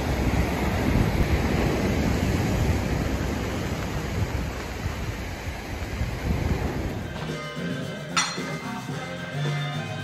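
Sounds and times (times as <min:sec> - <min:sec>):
sea surf: 0:00.0 - 0:07.1
wind: 0:00.0 - 0:09.8.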